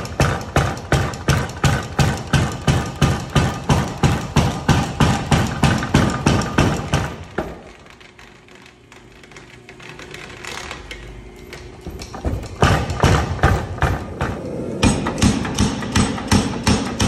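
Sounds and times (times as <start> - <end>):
power hammer striking: 0.0 - 7.7, 12.0 - 17.0
steady hum: 0.0 - 17.0.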